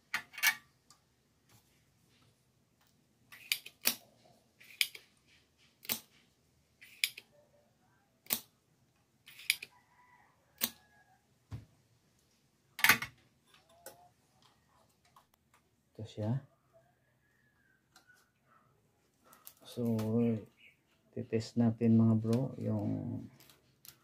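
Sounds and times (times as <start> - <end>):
hand tools clicking and snapping: 3.3 - 4.0, 4.6 - 6.2, 6.8 - 7.3, 8.2 - 8.5, 9.3 - 9.7.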